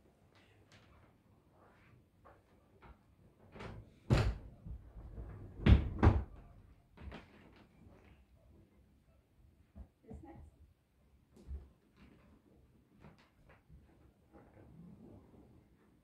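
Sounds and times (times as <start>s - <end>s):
bed knocking against frame: 4.1s - 6.4s.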